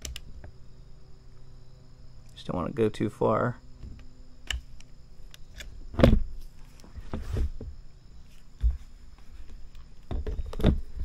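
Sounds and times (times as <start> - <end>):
faint high steady tone: 0.0 - 7.0.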